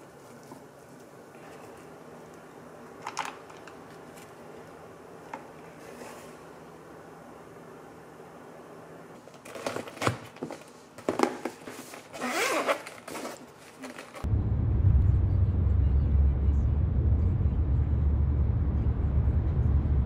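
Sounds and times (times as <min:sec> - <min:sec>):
plastic containers clicking and rustling: 0:03.0 - 0:04.3, 0:09.3 - 0:14.3
zipper being pulled: 0:12.1 - 0:14.2
car interior rumble: 0:14.2 - 0:20.0.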